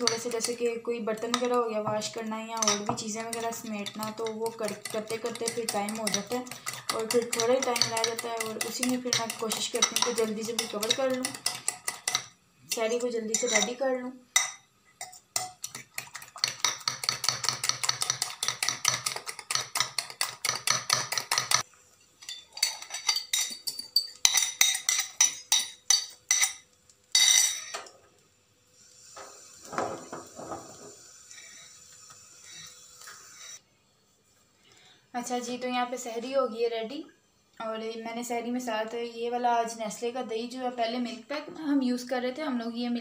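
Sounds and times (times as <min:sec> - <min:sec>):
spoon scraping and tapping bowl: 0:00.0 - 0:00.6, 0:02.6 - 0:12.3, 0:13.3 - 0:13.8, 0:14.4 - 0:21.6, 0:22.2 - 0:27.9
fork beating batter in glass bowl: 0:02.6 - 0:12.3, 0:15.0 - 0:21.6
omelette sizzling in pan: 0:28.7 - 0:33.6.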